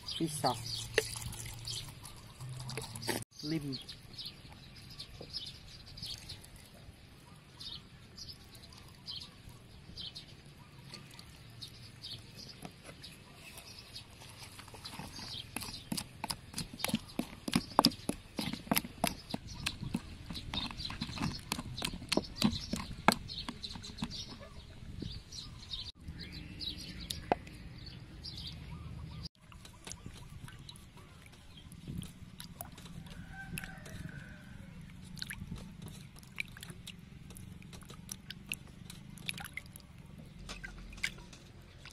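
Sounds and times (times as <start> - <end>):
pestle pounding in mortar: 15.4 - 24.4.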